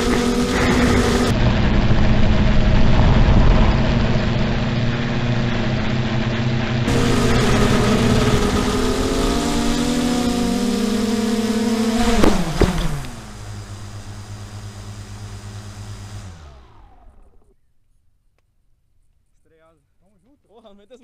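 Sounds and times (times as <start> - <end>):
drone crashing into ground: 0.0 - 10.8
drone motors whining: 0.0 - 17.6
low hum: 0.0 - 17.6.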